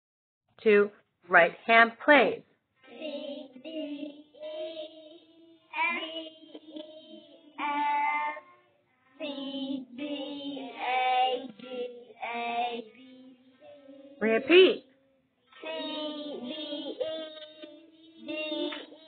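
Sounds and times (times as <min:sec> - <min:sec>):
children singing together: 0:02.8 - 0:14.2, 0:15.4 - 0:19.0.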